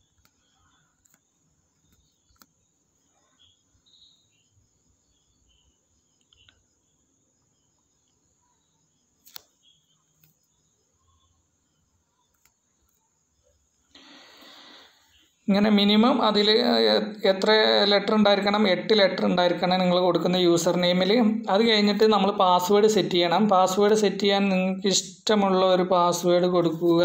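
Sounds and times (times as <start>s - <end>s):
faint clicks: 0.0s - 2.6s, 6.2s - 6.6s, 12.2s - 13.0s.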